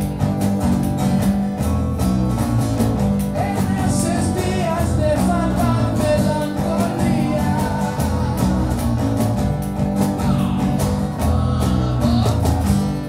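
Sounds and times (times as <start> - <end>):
strummed acoustic guitar: 0.0 - 13.0
person singing: 3.4 - 9.3, 10.0 - 12.9.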